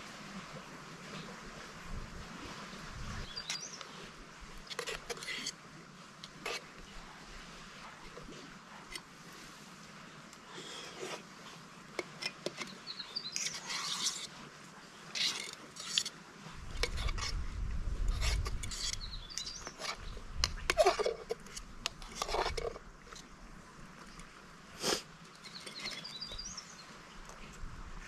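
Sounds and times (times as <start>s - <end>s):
metal spoon scraping a pot: 4.6s - 5.6s, 12.0s - 14.3s, 15.1s - 16.1s, 16.7s - 17.4s, 18.0s - 23.2s, 24.8s - 26.4s.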